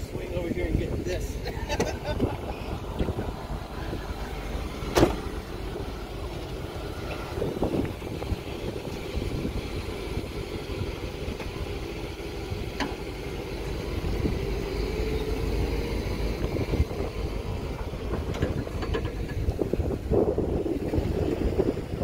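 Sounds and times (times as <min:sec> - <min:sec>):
engines rumbling under load: 0:00.0 - 0:22.0.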